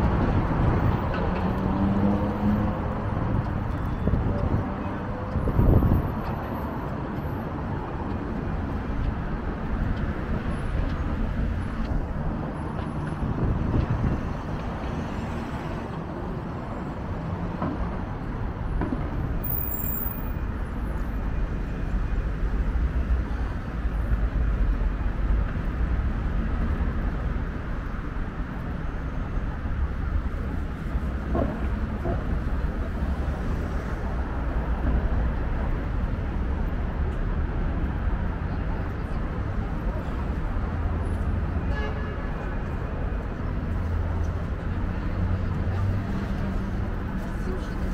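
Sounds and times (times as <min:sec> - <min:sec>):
passing vehicles rumble: 0:00.0 - 0:47.9.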